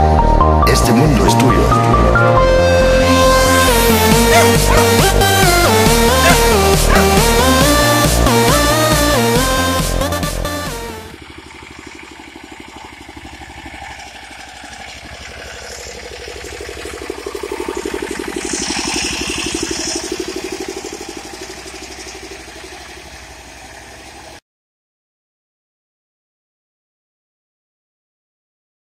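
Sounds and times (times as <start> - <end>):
electronic music: 0.4 - 13.2, 15.1 - 23.2
small engine running: 1.1 - 24.4.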